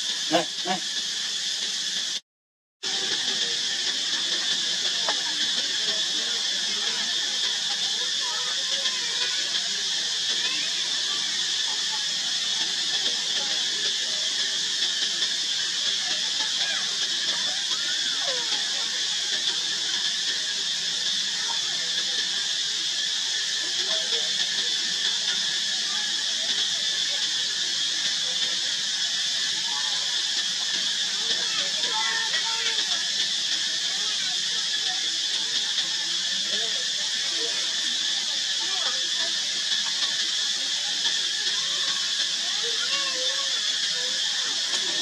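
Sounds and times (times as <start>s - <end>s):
high-pitched insect buzzing: 0.2s - 1.0s.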